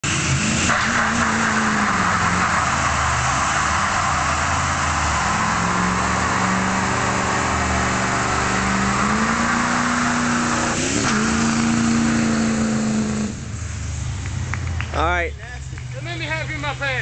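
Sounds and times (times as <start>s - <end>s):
diesel engine revving high: 0.0s - 15.1s
tyres spinning on pavement: 0.4s - 12.1s.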